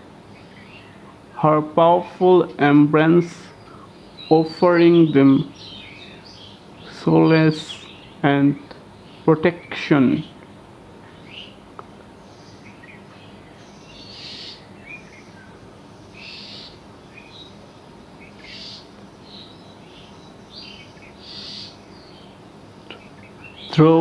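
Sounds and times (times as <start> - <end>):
soft steady background hiss: 0.0 - 24.0
harsh hissing bird call: 3.2 - 10.4, 12.2 - 23.7.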